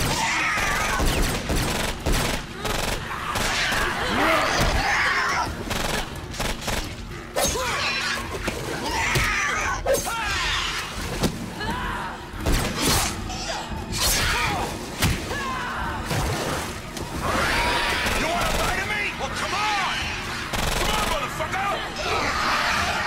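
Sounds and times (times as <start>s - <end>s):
background music: 0.0s - 23.0s.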